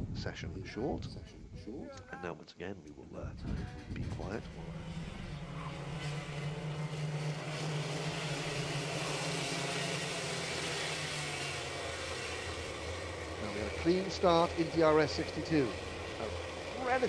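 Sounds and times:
kart engines droning: 3.4s - 17.0s.

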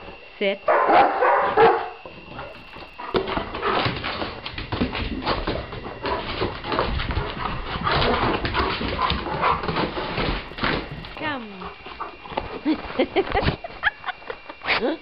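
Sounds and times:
dog paws on hardwood floor: 1.7s - 13.6s.

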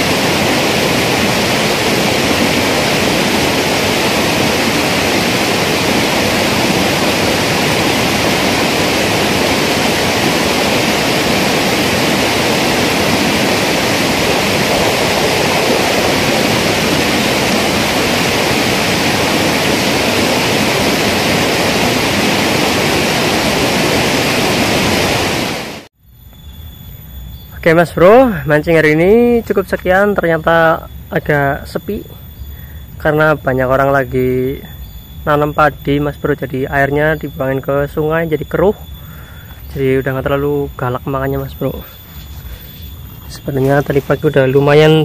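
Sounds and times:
canal water rushing: 0.0s - 25.9s.

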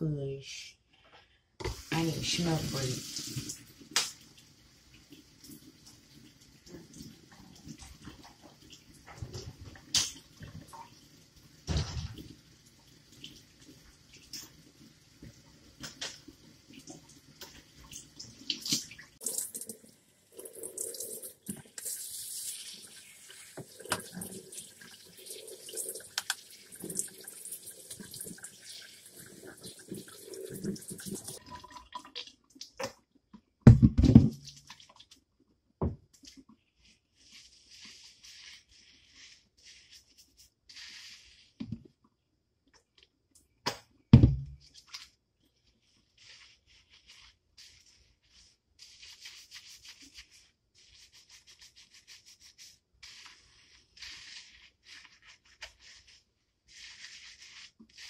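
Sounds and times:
water splashing into sink: 1.6s - 35.2s
loud thump: 44.1s - 44.6s.

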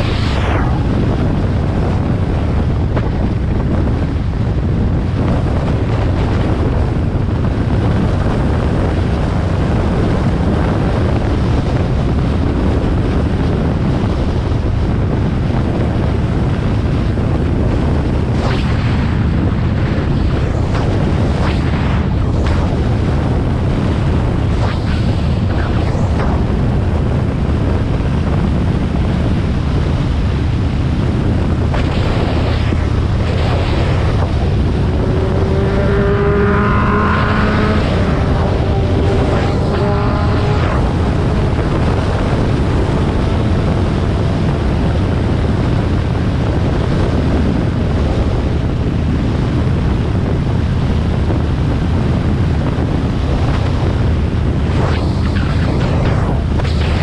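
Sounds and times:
wind rushing over microphone: 0.0s - 57.0s
whining tone: 18.3s - 27.5s, 31.5s - 44.2s
motorcycle engine running: 32.6s - 47.4s.

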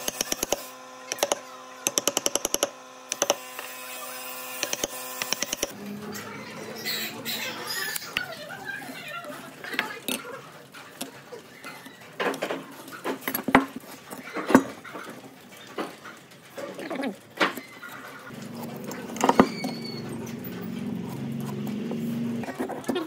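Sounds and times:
motor humming: 0.0s - 9.2s, 16.6s - 23.0s.

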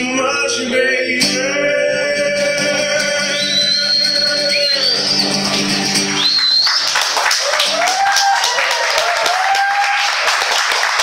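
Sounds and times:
person singing: 0.0s - 5.0s
acoustic guitar: 0.0s - 8.0s
audience cheering: 3.5s - 11.0s
audience applause: 4.7s - 11.0s.

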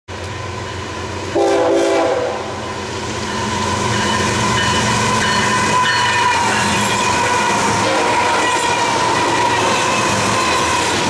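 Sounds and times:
diesel locomotives rumbling: 0.1s - 11.0s
train air horn blast: 1.3s - 2.6s, 7.3s - 8.9s.

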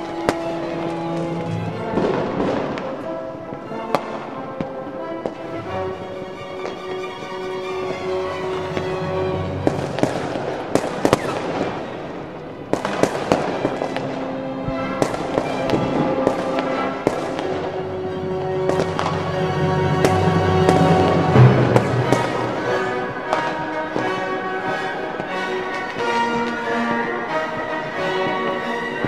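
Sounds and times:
fireworks bangs and crackles: 0.0s - 5.4s, 7.8s - 29.0s
music with held notes: 0.0s - 29.0s.

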